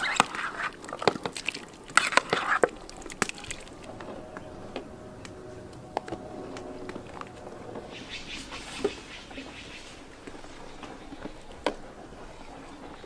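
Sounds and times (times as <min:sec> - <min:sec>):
splashy scrapes: 0:00.0 - 0:04.0
wooden spoon stirring porridge: 0:00.0 - 0:05.0.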